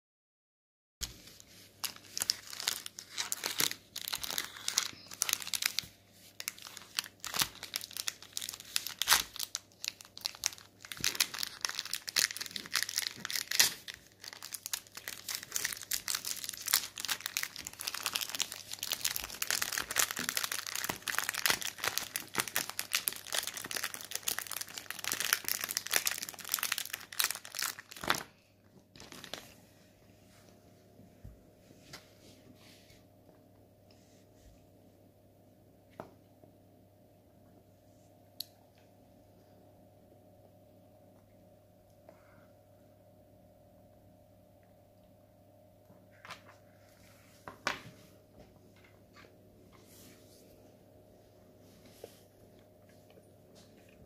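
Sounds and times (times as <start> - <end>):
plastic wrapper crinkling: 1.0 - 29.6.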